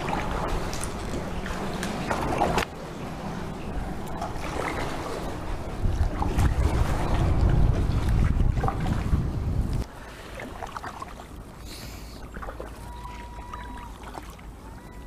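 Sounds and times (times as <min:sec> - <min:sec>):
wind rumble on microphone: 0:00.0 - 0:09.9
paddle splashing in water: 0:00.0 - 0:14.7.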